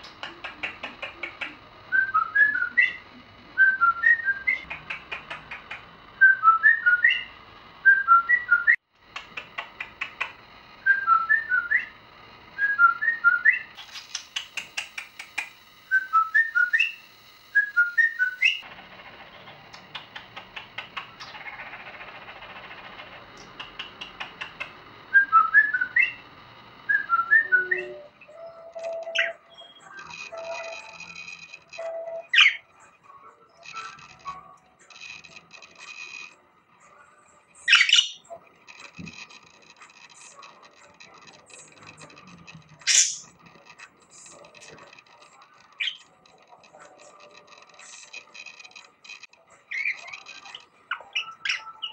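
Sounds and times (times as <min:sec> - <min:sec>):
budgerigar whistling: 0:00.0 - 0:03.0, 0:03.6 - 0:11.9, 0:15.9 - 0:17.0, 0:17.6 - 0:18.6, 0:23.4 - 0:26.2, 0:26.9 - 0:30.9, 0:31.8 - 0:32.7, 0:37.7 - 0:38.3, 0:42.8 - 0:43.3, 0:49.7 - 0:51.9
sharp clicks: 0:00.0 - 0:03.0, 0:03.6 - 0:27.6, 0:37.7 - 0:51.9
budgerigar warbling: 0:37.7 - 0:38.3, 0:42.8 - 0:43.3
loud sharp squawk: 0:42.9 - 0:43.3.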